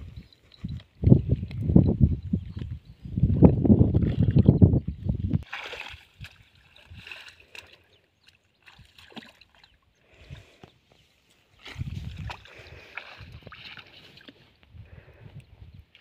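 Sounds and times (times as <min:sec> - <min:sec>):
hands splashing in muddy water: 0:05.4 - 0:09.8, 0:11.6 - 0:14.4.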